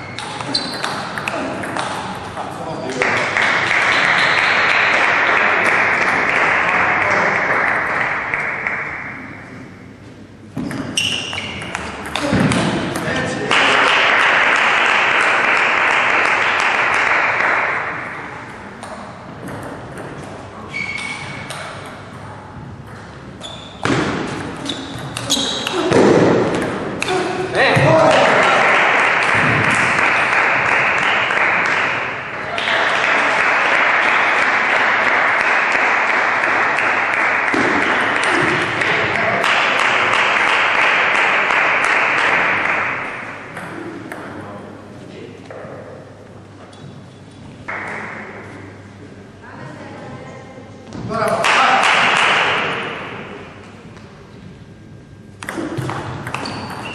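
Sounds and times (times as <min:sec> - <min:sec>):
spectators applauding: 0:02.8 - 0:09.0, 0:13.5 - 0:18.0, 0:27.9 - 0:43.0.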